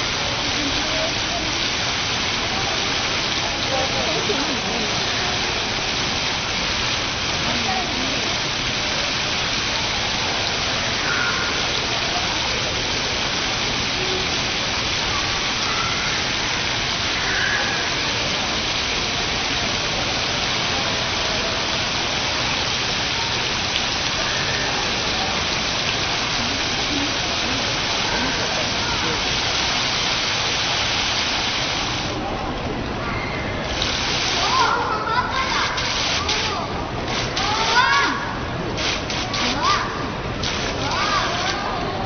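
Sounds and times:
water curtain rushing: 33.0 - 42.0.

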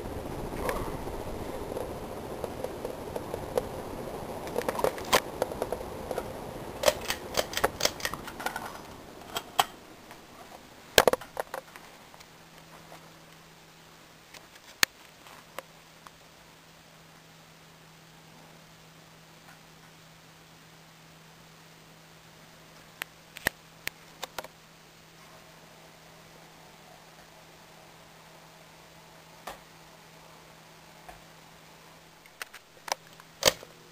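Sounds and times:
ceiling fan rustling and rattling: 0.0 - 13.4
faint motor hum: 0.0 - 14.3.

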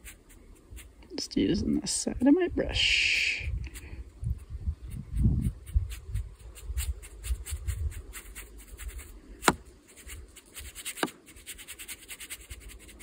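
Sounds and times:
brush scratching on paper: 0.0 - 1.1, 4.4 - 13.0.

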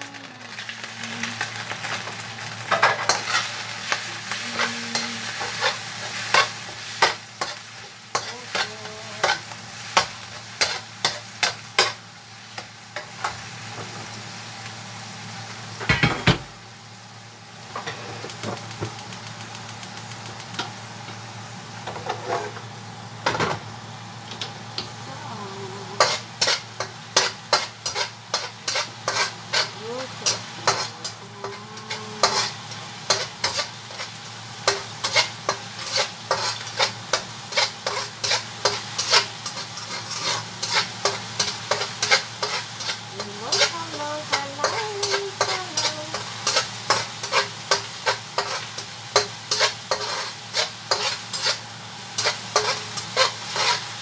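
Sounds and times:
food sizzling: 0.0 - 54.0
utensil scraping a metal pan: 26.0 - 34.1, 34.7 - 51.6, 52.2 - 53.8.

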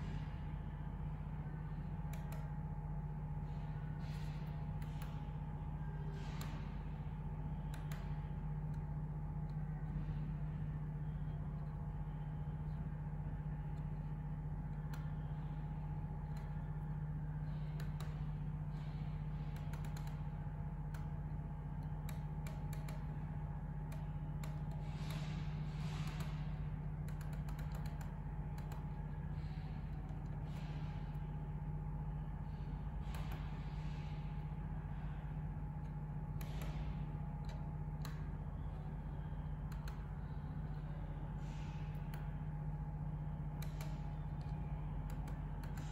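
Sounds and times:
steady low hum: 0.0 - 45.9
monitor buttons clicking: 21.8 - 23.2, 23.9 - 30.9, 35.8 - 39.0, 39.6 - 42.3, 43.6 - 45.9.

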